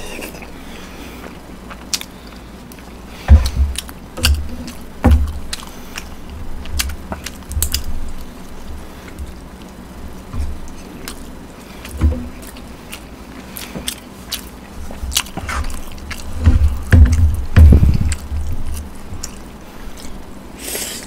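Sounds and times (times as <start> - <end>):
person chewing: 0.0 - 21.0
dull low thumps: 3.2 - 5.5, 15.0 - 19.3.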